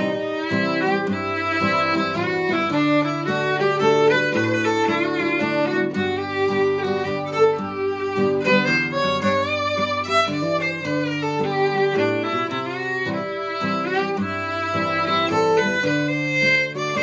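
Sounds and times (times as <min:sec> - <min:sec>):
fiddle bowed melody: 0:00.0 - 0:17.0
strummed acoustic guitar: 0:00.0 - 0:17.0.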